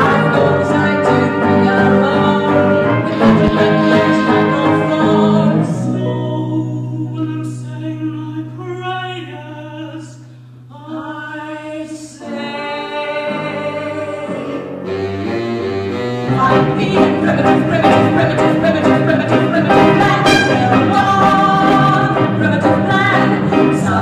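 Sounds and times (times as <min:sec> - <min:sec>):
small band playing: 0:00.0 - 0:06.2, 0:12.2 - 0:24.0
woman singing: 0:00.0 - 0:14.7, 0:16.3 - 0:24.0.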